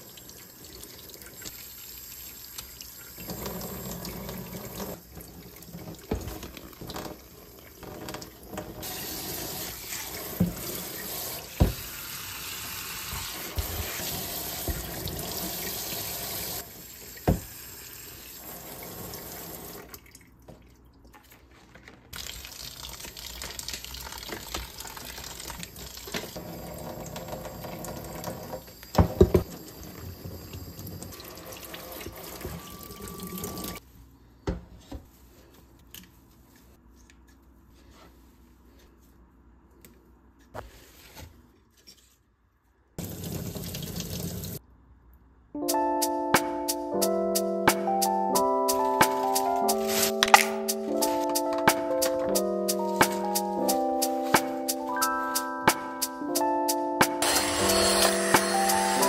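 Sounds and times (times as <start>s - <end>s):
faucet water splashing into sink: 22.2s - 28.3s, 43.0s - 44.6s.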